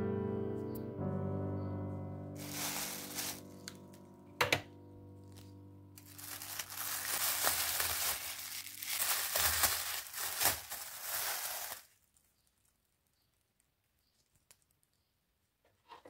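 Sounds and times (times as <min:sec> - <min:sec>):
soft piano music: 0:00.0 - 0:11.8
plastic bags crinkling: 0:02.4 - 0:04.0, 0:06.0 - 0:12.9.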